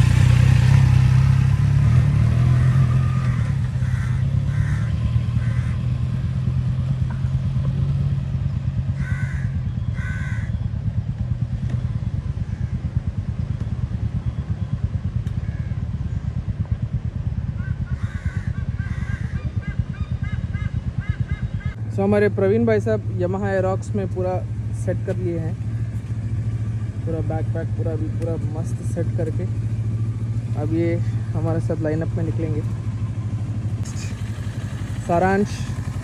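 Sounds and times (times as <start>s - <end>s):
motorcycle engine pulling away: 0.0s - 36.0s
crows cawing: 3.7s - 6.0s, 9.0s - 10.6s, 12.4s - 12.8s, 17.6s - 21.3s.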